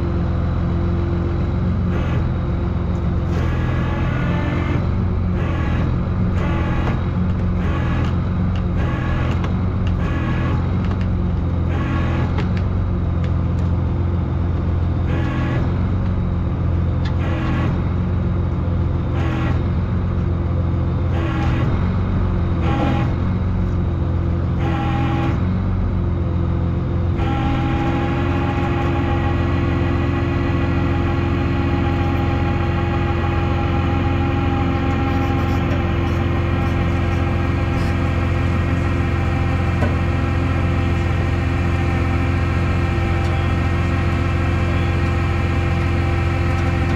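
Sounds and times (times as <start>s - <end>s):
vehicle engine humming: 0.0s - 46.9s.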